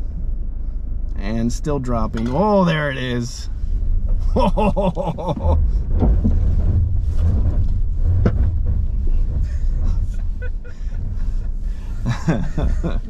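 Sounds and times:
low rumble in car cabin: 0.0s - 13.0s
knocks and clunks: 1.9s - 2.7s, 3.8s - 13.0s.

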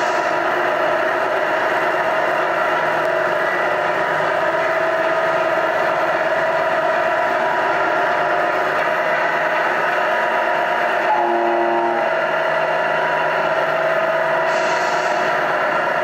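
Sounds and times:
simulated diesel truck engine: 0.0s - 16.0s
truck horn: 11.0s - 12.2s
short hiss: 14.5s - 15.2s.

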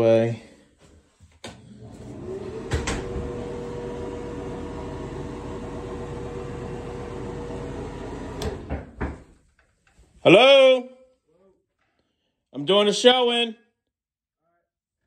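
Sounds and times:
exhaust fan humming: 1.7s - 8.8s.

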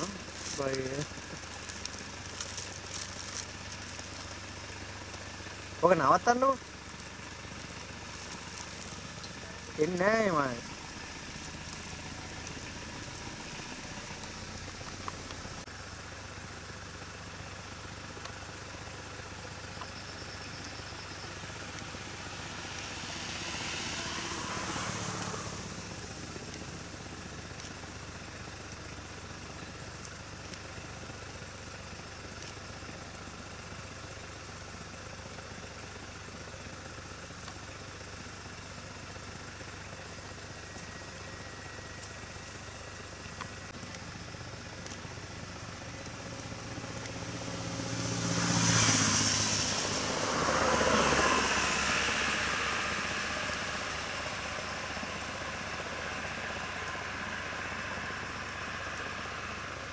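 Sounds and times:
vehicle engine idling: 0.0s - 59.9s.

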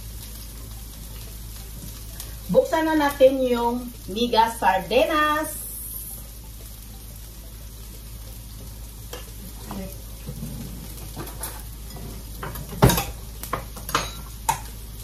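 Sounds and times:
onion sizzling in frying pan: 0.0s - 15.0s.

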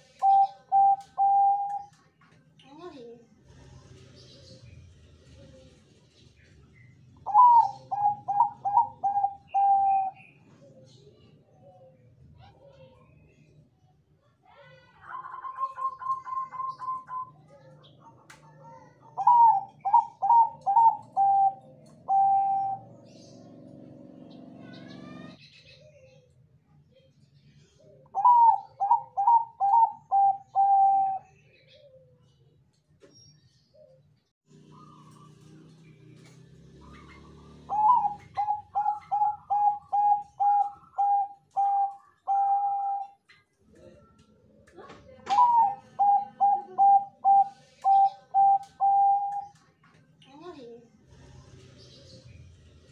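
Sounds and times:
dove cooing: 0.0s - 2.0s, 7.2s - 12.0s, 15.1s - 23.9s, 27.8s - 32.4s, 34.6s - 35.6s, 36.2s - 44.2s, 45.1s - 49.7s.

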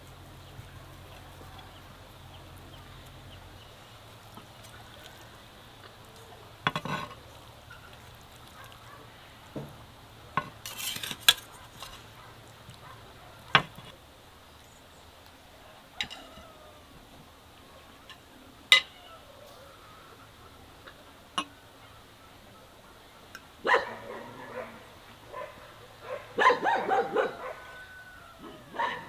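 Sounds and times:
fork scraping a plate: 6.7s - 7.9s, 10.4s - 12.1s.

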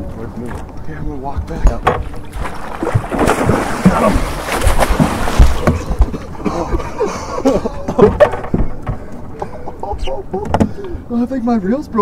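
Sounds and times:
fish thrashing and splashing water: 2.0s - 6.2s.

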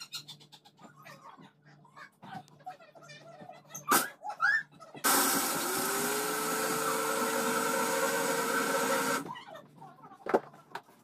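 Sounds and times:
blender motor running: 5.0s - 9.3s.

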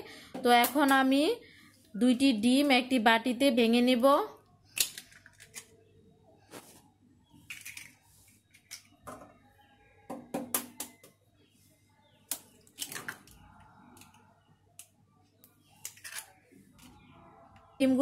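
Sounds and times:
egg shell cracking: 4.7s - 5.8s, 7.5s - 8.0s.

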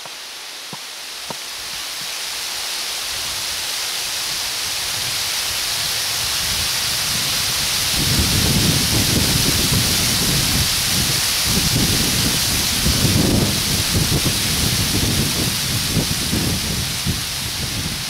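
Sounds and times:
wind noise: 3.0s - 18.0s
wind gusts buffeting microphone: 4.3s - 18.0s.

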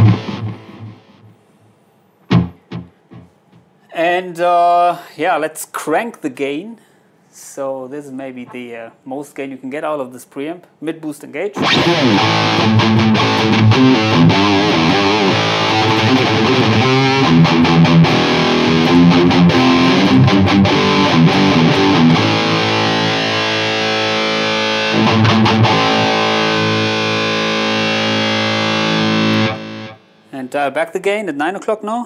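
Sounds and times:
distorted electric guitar riff: 0.0s - 1.3s, 2.3s - 3.4s, 11.6s - 30.3s.

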